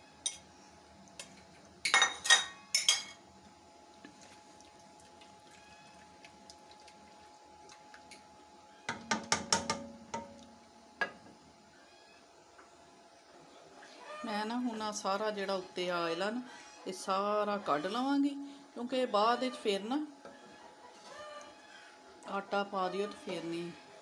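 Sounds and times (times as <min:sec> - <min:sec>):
faint steady hum: 0:00.0 - 0:24.0
utensils clinking on metal pot: 0:01.8 - 0:03.2.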